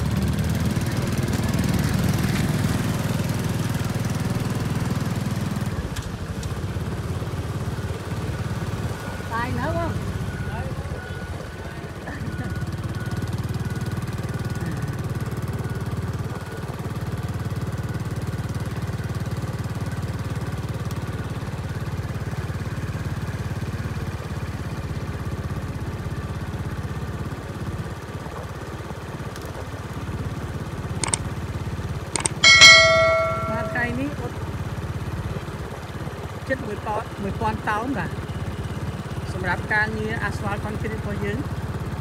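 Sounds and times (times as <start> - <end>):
vehicle driving on asphalt: 0.0 - 32.0
clicks: 31.0 - 31.2, 32.2 - 33.9
loud ringing chime: 32.4 - 34.2.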